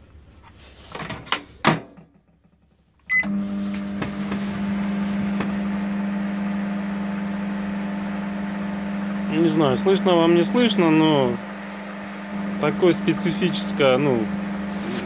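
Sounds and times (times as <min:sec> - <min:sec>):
microwave buzzing hum: 0:03.0 - 0:15.0
short beep: 0:03.1 - 0:03.3.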